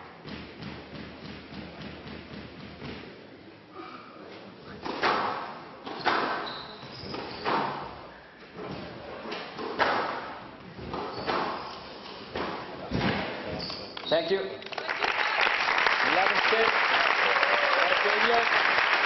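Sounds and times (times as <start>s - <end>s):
squash ball cracking off rackets and walls: 4.8s - 7.9s, 9.4s - 11.6s.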